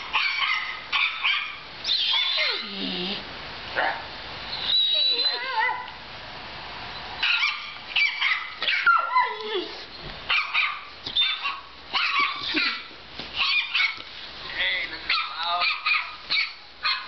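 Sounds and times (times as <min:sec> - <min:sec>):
puppy yipping and barking: 0:00.0 - 0:03.1, 0:04.6 - 0:06.0, 0:07.2 - 0:14.0, 0:15.1 - 0:17.0.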